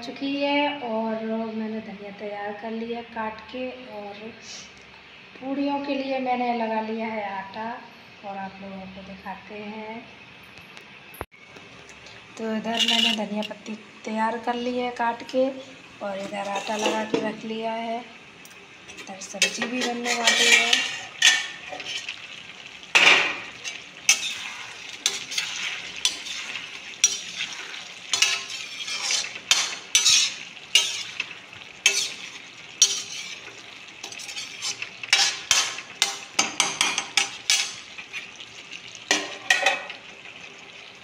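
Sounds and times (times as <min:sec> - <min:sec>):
food sizzling: 0:11.2 - 0:41.0
metal spatula scraping pan: 0:12.6 - 0:13.6, 0:16.2 - 0:17.3, 0:18.9 - 0:22.2, 0:23.0 - 0:38.4, 0:39.1 - 0:40.0.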